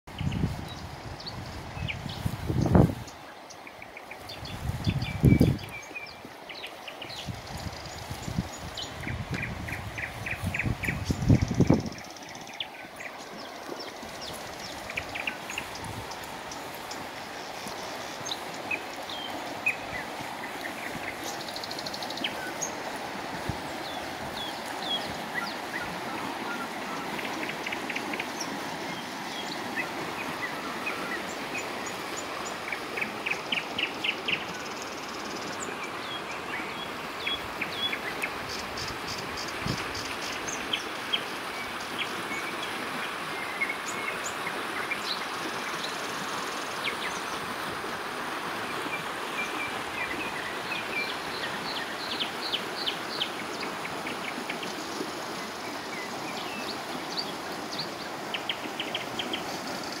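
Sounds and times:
songbirds chirping and trilling: 0.1 - 47.6, 48.6 - 60.0
river rushing over rocks: 0.2 - 60.0.

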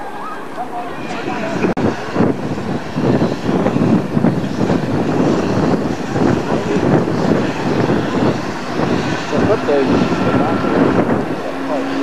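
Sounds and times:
wind buffeting microphone: 0.0 - 12.0
diesel locomotive engine running: 1.0 - 12.0.

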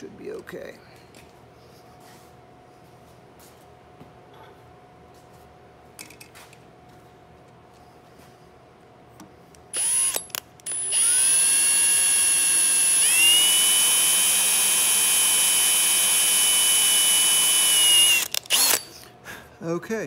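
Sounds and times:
drill press motor whine: 9.7 - 19.0.

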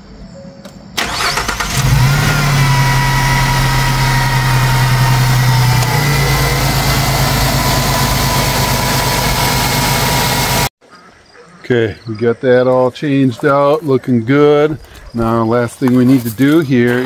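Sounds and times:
starter cranking: 1.0 - 10.7
van engine idling: 1.0 - 10.7.

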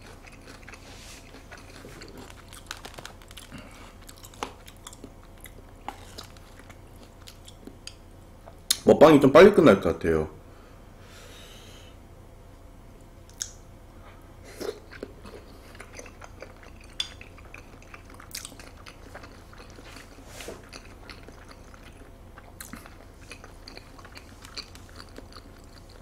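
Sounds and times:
wet chewing: 0.0 - 8.6, 14.6 - 26.0.

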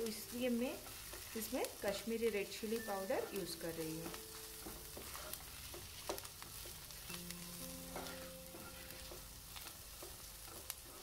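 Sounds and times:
onions sizzling in oil: 0.0 - 11.0
spatula scraping pan: 4.9 - 11.0.

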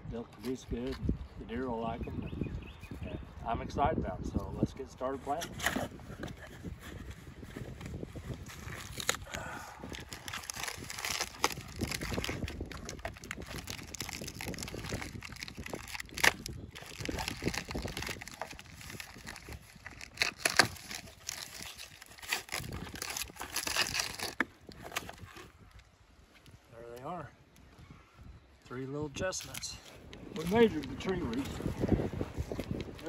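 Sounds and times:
plastic and paper rustling: 5.3 - 25.6, 29.3 - 33.0.

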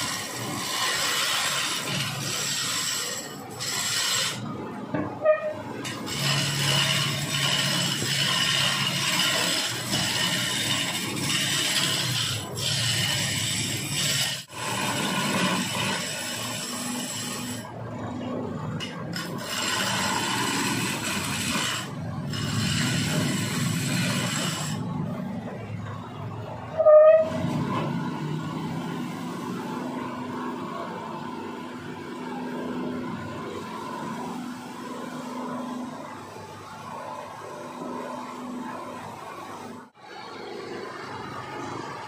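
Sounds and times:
gouge scraping spinning log: 0.0 - 4.5, 5.2 - 17.7, 18.8 - 24.9.

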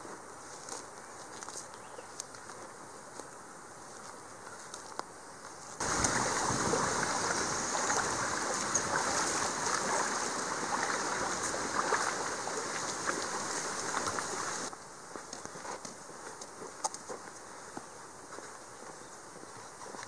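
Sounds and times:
creek water babbling over gravel: 5.8 - 14.7.

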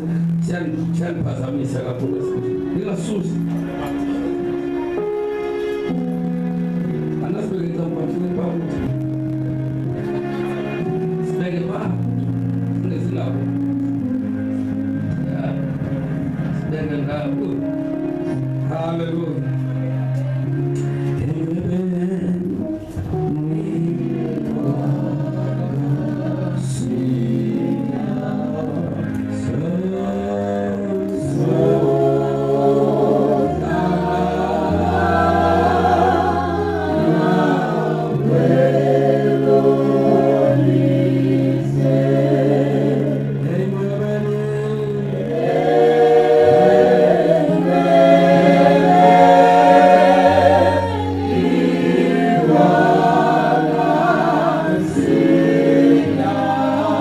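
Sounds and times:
low keyboard chords: 0.0 - 57.0
gospel group singing: 21.1 - 57.0.

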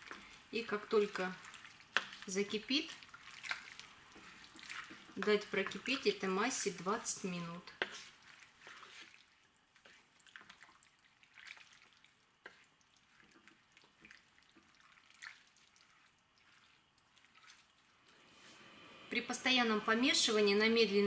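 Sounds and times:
wooden spoon scraping: 0.0 - 10.6, 12.4 - 14.7
pot simmering with pops: 0.0 - 18.2.

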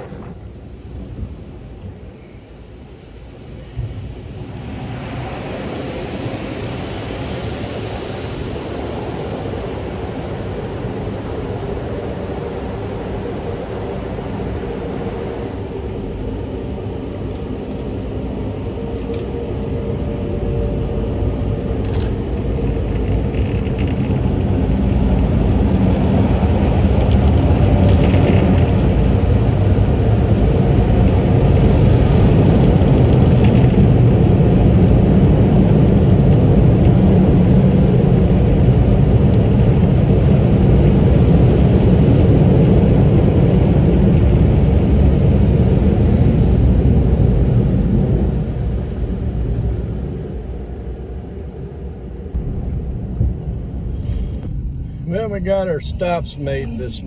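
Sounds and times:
car wash air blowers rumbling: 52.3 - 57.0.

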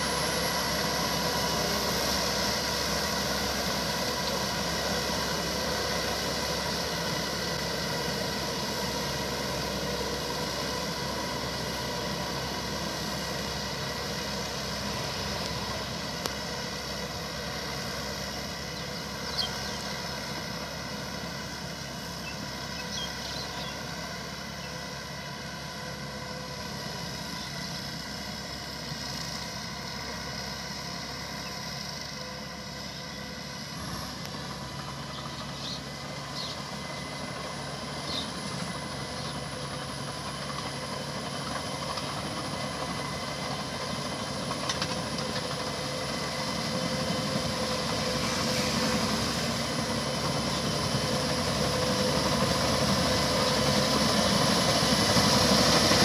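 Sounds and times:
harvesting machinery hum: 0.0 - 56.0.

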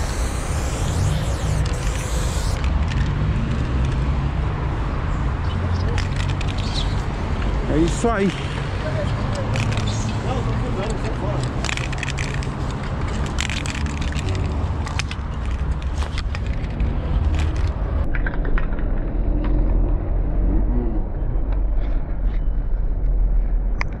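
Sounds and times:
steady low rumble: 0.0 - 5.0, 16.4 - 24.0.

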